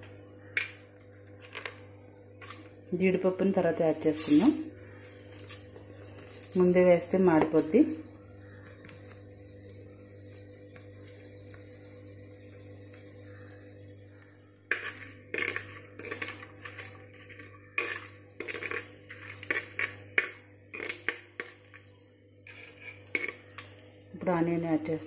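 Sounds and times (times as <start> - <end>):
low steady hum: 0.0 - 25.0
spices frying in oil: 0.0 - 25.0
metal spoon scraping clay pot: 14.7 - 21.8, 22.4 - 23.6.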